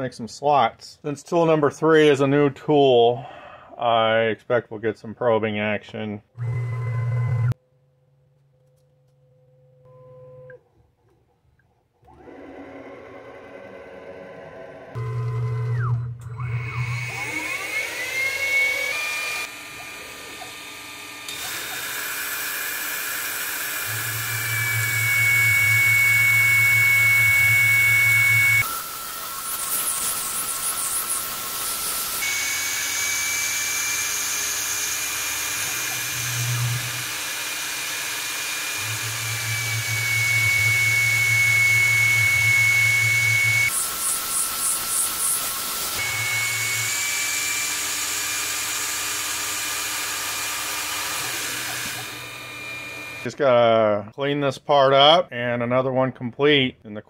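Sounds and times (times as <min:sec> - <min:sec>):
milling spindle high whine: 0:12.1 - 0:53.3.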